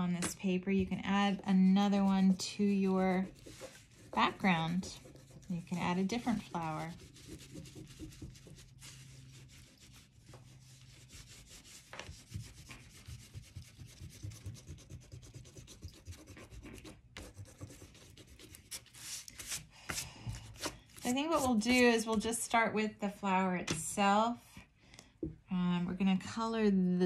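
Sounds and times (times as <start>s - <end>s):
eraser rubbing on paper: 1.5s - 19.6s, 21.0s - 22.1s.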